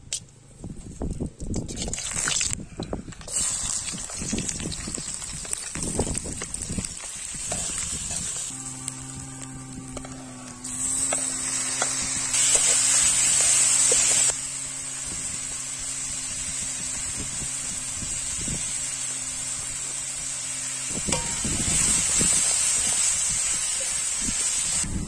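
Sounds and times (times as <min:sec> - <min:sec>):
food sizzling in hot oil: 0:03.3 - 0:25.0
steady high buzz: 0:07.4 - 0:25.0
low steady hum: 0:07.5 - 0:22.0.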